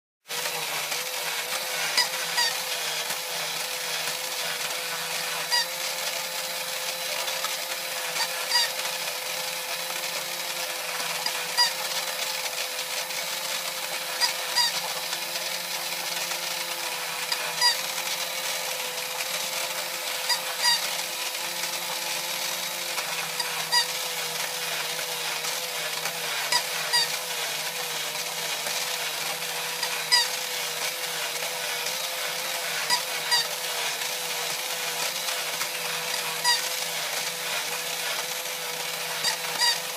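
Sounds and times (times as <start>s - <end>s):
toy motor and gears whirring: 0.3s - 39.9s.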